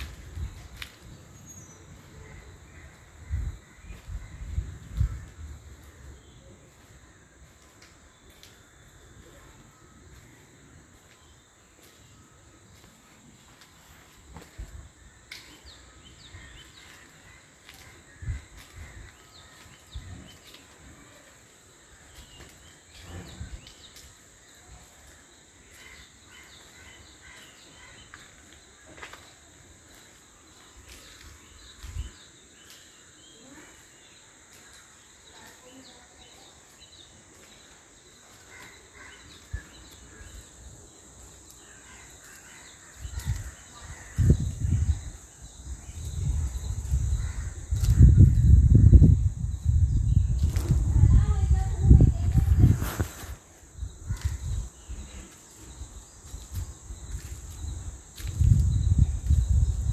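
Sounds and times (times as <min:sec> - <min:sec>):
high insect drone: 0:20.8 - 0:59.9.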